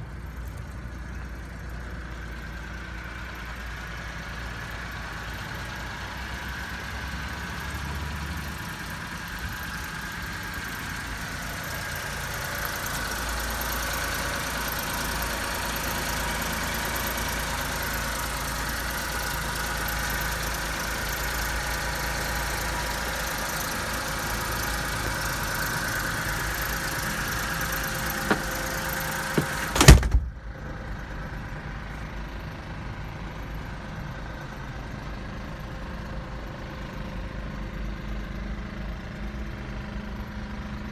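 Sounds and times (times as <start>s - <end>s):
truck engine idling: 0.0s - 40.8s
knocks: 28.2s - 28.6s, 29.4s - 30.3s
loud slam: 29.4s - 30.4s.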